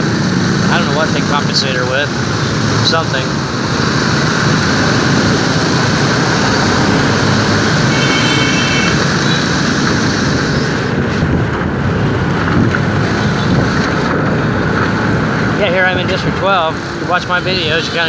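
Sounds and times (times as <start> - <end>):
motorbike and truck traffic: 0.0 - 18.0
short high horn beep: 7.9 - 9.5.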